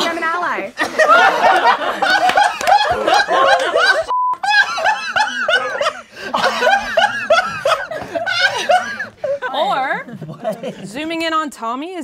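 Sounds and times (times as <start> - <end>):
group of people laughing: 0.8 - 11.0
censor bleep: 4.1 - 4.4.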